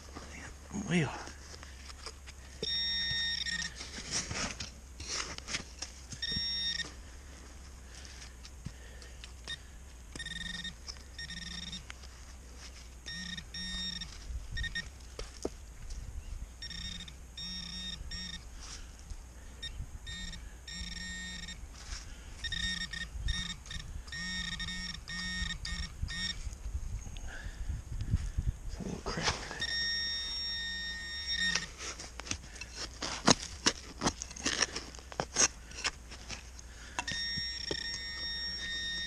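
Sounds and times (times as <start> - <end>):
metal detector pinpointer beeping: 2.6 - 3.8, 6.2 - 7.0, 9.4 - 12.0, 13.0 - 14.9, 16.6 - 18.5, 19.6 - 21.6, 22.4 - 26.5, 29.6 - 31.8, 37.0 - 39.0
hands working soil: 3.5 - 9.3, 29.0 - 29.7, 31.4 - 39.0.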